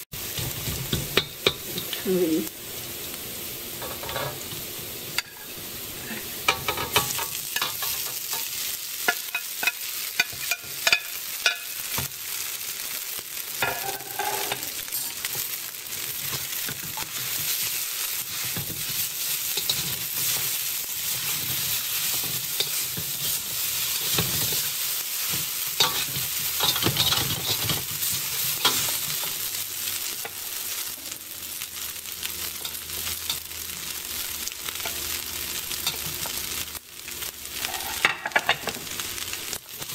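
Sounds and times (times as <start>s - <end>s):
noodles sizzling in hot oil: 0.0s - 39.9s
metal spatula scraping a wok: 13.6s - 15.3s, 25.8s - 29.4s, 37.6s - 38.5s.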